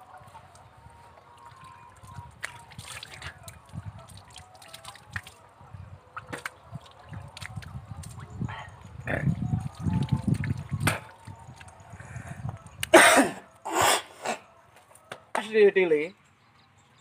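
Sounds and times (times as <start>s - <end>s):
water splashing: 0.0s - 5.5s, 6.1s - 8.4s, 9.1s - 11.8s
water trickling from a hose: 0.0s - 12.3s.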